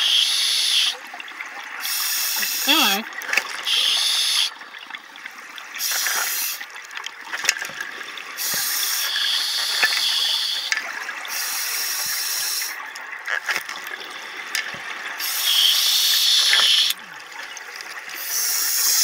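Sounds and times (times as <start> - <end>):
underwater bubbling and crackle: 0.1 - 19.0
regulator air hiss: 1.8 - 2.9, 5.8 - 6.6, 8.4 - 12.8, 15.2 - 17.0, 18.2 - 19.0.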